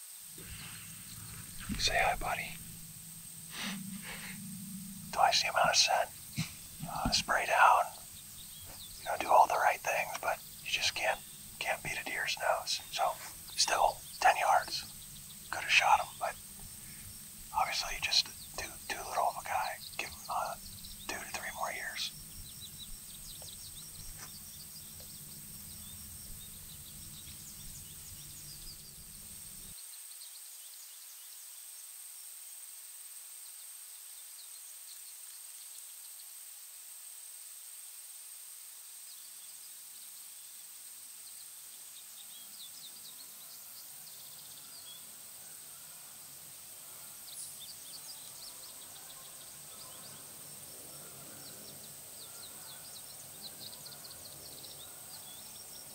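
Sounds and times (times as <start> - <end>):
low hum: 0.4 - 9.2
faint bird chirps: 0.4 - 31.9, 41.2 - 55.9.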